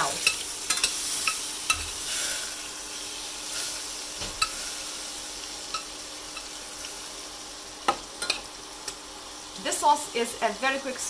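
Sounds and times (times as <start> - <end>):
margarine sizzling in a saucepan: 0.0 - 11.0.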